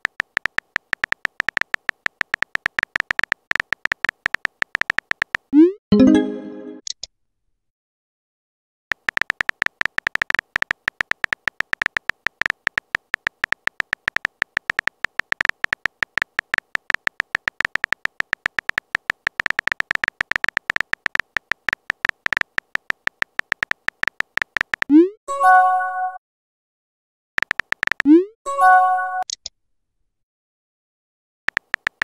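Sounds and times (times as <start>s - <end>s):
phone keyboard typing clicks: 0.0s - 5.5s, 8.9s - 24.9s, 27.4s - 28.1s, 31.5s - 32.0s.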